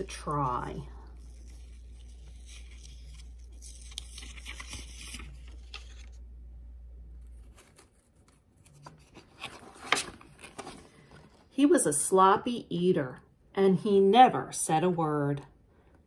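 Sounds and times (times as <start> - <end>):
paper pages rustling: 0.0 - 6.3, 7.2 - 11.5
steady low hum: 0.0 - 9.4
page turning: 1.1 - 6.3, 7.2 - 11.4.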